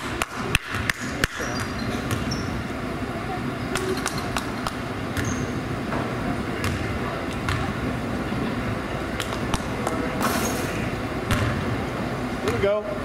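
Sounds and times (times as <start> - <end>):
murmur of crowd voices: 0.0 - 13.0
shoe squeak: 1.1 - 2.6, 3.8 - 5.6
basketball bouncing on hardwood: 6.6 - 7.7, 11.3 - 11.6.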